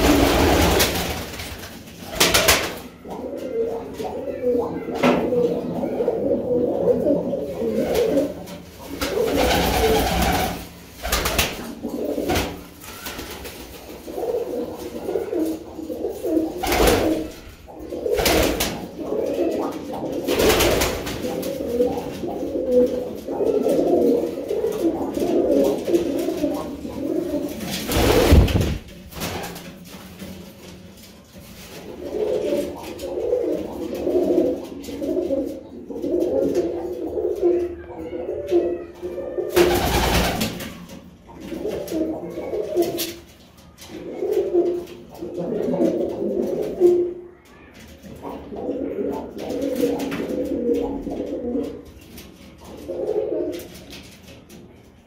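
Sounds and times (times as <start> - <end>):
pigeons cooing: 0.0 - 29.9, 31.2 - 54.6.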